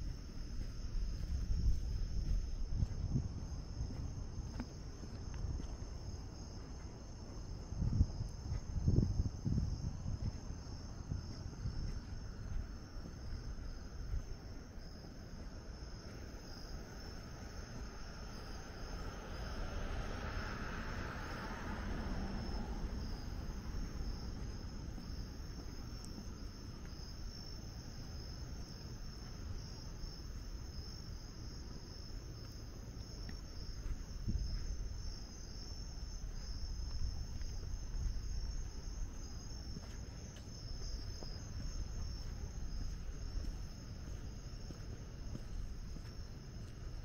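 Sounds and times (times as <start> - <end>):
low rumble: 0.0 - 14.6
crickets chirping: 0.0 - 47.0.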